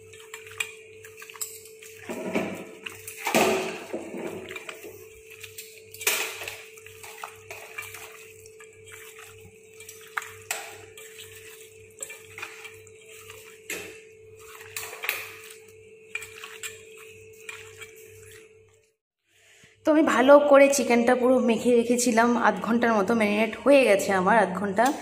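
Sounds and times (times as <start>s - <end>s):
wet squelching of mixing chicken: 0.0s - 19.0s.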